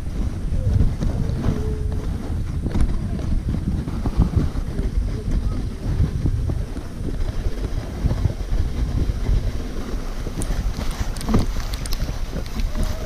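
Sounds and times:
sled runners scraping on snow: 0.0 - 13.0
wind noise on microphone: 0.0 - 13.0
sharp ticks: 10.4 - 12.8.

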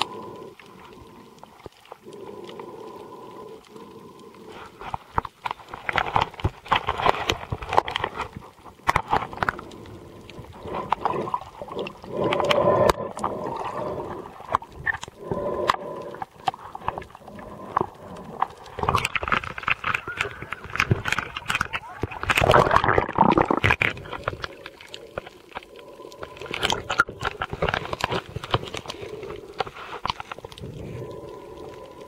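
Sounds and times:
underwater rushing and gurgling: 0.0 - 32.0.

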